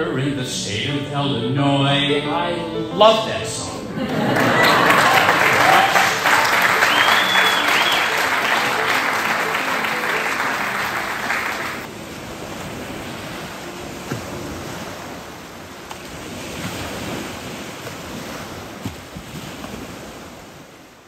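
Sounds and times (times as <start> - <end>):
applause: 4.1 - 11.9.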